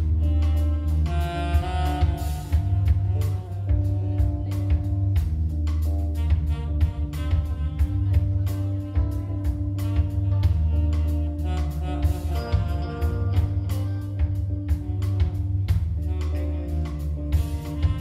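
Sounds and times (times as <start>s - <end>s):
bass line: 0.0s - 18.0s
guitar: 0.0s - 18.0s.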